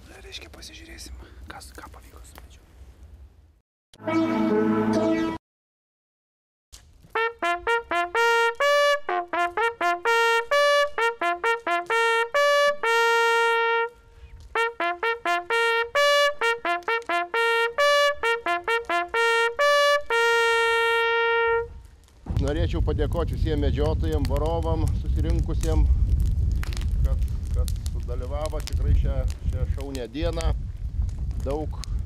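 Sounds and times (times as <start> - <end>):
brass hunting horn signal: 7.1 - 21.8.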